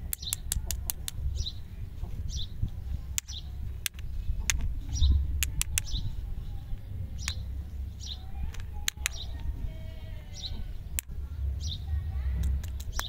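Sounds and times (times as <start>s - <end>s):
sharp clicks: 0.0s - 1.6s, 3.1s - 9.5s, 10.4s - 11.2s, 12.3s - 13.0s
bird chirping: 0.0s - 13.0s
low rumble: 0.0s - 13.0s.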